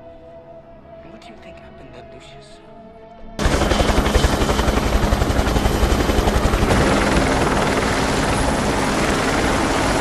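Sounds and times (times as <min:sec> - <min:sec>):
helicopter engine and rotor: 0:03.4 - 0:10.0.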